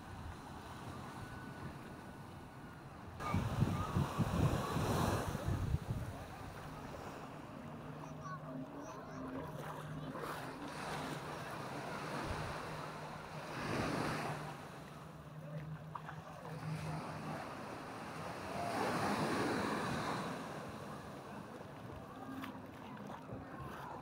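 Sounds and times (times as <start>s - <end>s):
waves washing on sand: 3.2s - 7.5s, 9.9s - 15.0s, 15.6s - 22.7s.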